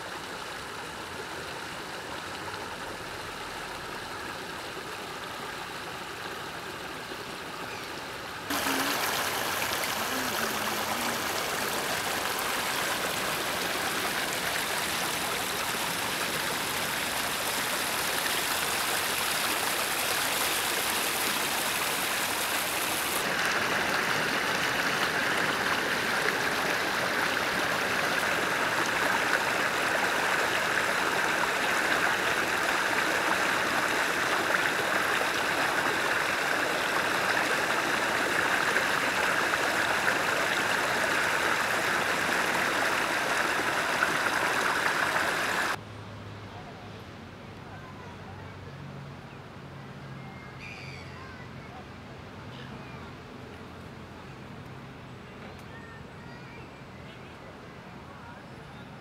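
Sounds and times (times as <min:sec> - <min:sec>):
water running over rocks: 0:00.0 - 0:45.8.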